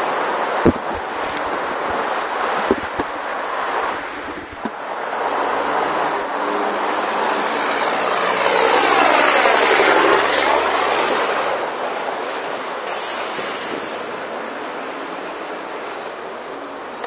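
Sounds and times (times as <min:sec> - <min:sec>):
bike road noise: 0:00.0 - 0:17.0
rushing wind: 0:00.0 - 0:17.0
passing engine drone: 0:03.2 - 0:12.8.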